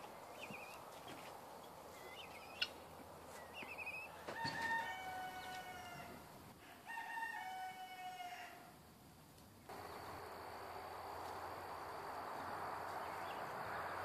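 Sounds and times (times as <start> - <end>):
rooster crowing: 4.1 - 8.7.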